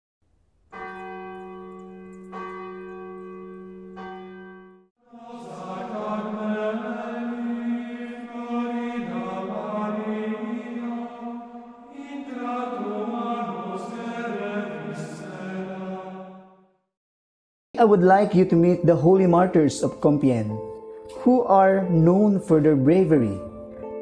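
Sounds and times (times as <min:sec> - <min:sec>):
bell ringing: 0:00.7 - 0:04.9
voices chanting: 0:05.1 - 0:16.3.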